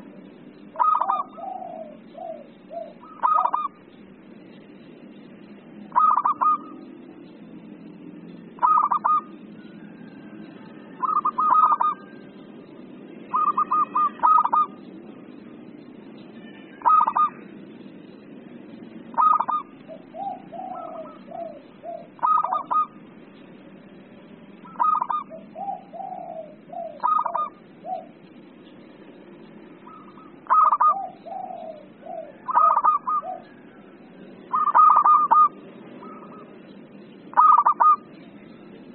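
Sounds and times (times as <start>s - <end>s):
doves cooing rapidly: 0.6s - 4.0s, 5.8s - 7.0s, 8.3s - 12.4s, 13.2s - 14.9s, 16.7s - 17.5s, 19.0s - 23.1s, 24.6s - 28.6s, 29.8s - 38.2s
soft trilled coos: 0.7s - 3.8s, 5.9s - 6.8s, 8.6s - 12.5s, 13.2s - 14.9s, 16.3s - 17.6s, 19.1s - 23.0s, 24.6s - 28.2s, 29.8s - 36.6s, 37.3s - 38.1s.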